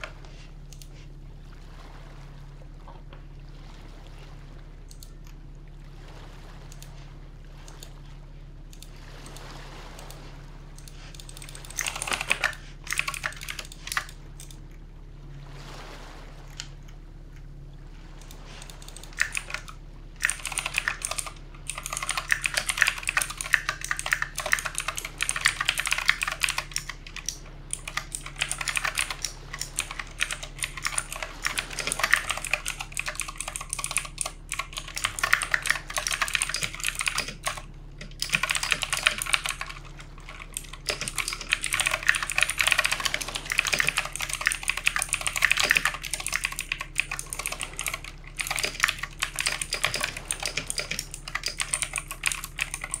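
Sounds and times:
mechanical keyboard key clicks: 11.2s - 14.1s, 18.9s - 19.6s, 20.2s - 53.0s.

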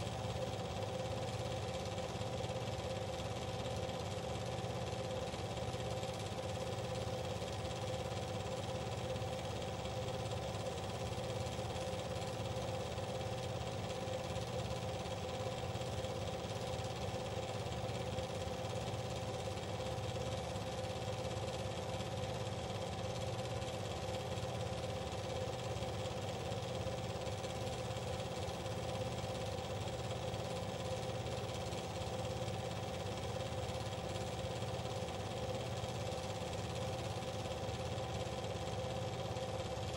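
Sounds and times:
machine humming with flutter: 23.5s - 39.9s.

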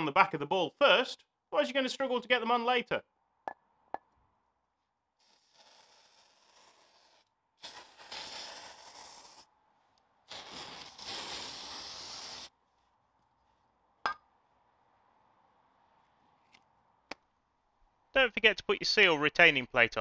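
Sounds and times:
aerosol spray hissing: 10.3s - 12.5s.

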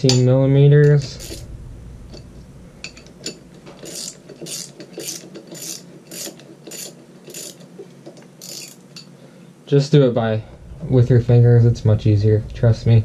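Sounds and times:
ratchet wrench clicking: 2.9s - 7.6s, 8.4s - 9.1s.

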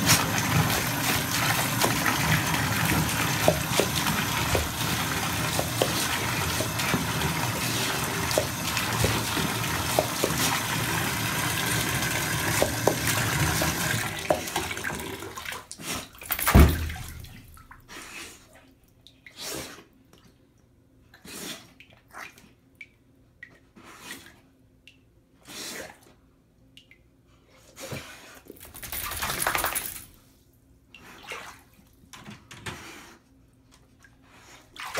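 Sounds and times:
dog splashing in bathwater: 0.0s - 17.7s, 28.8s - 30.0s
water running from bathtub spout: 0.0s - 17.7s.

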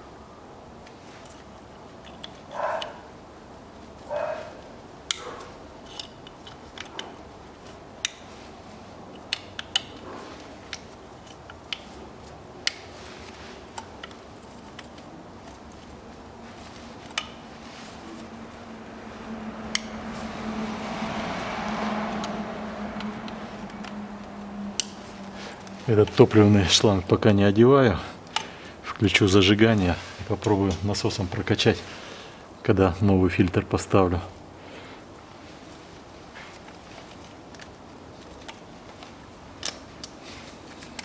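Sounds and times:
low steady hum: 0.0s - 41.0s
scraping rustles: 3.8s - 20.6s.

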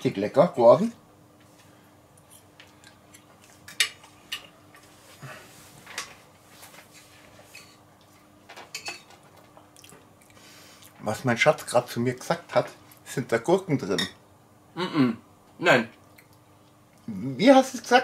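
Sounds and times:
faint steady hum: 0.0s - 18.0s
cutlery clinking on plate: 8.6s - 9.1s.

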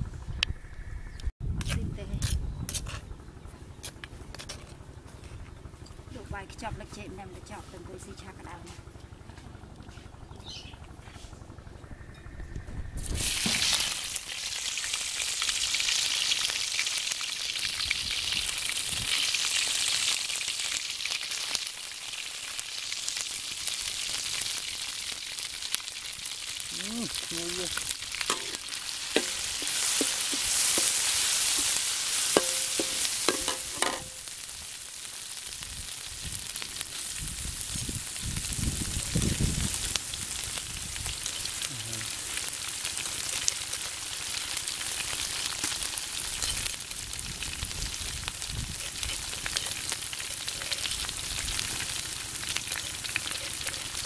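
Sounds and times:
paste sizzling in hot oil: 13.1s - 54.0s
metal spoon stirring: 28.3s - 34.1s, 48.7s - 51.2s, 52.6s - 54.0s.

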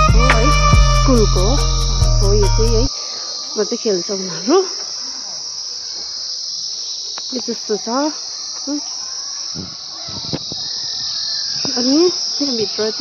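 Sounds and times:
background music: 0.0s - 2.9s
high-pitched insect drone: 0.0s - 13.0s
faint voices: 7.3s - 13.0s.

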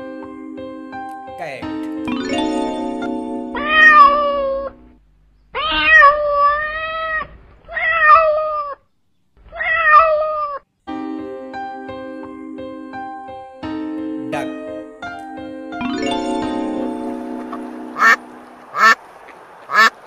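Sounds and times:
piano music: 0.0s - 5.0s, 10.9s - 19.0s
cat meowing: 3.6s - 4.7s, 5.6s - 8.8s, 9.5s - 10.6s.

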